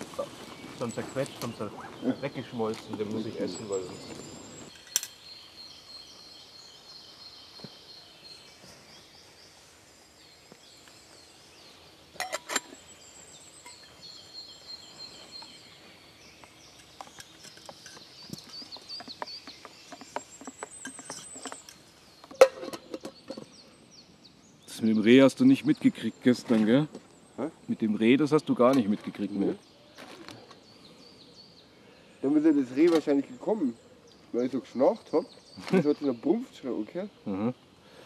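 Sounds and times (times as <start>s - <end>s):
small birds singing: 0.0s - 38.0s
metal pot clinks: 12.2s - 12.8s, 20.4s - 23.5s.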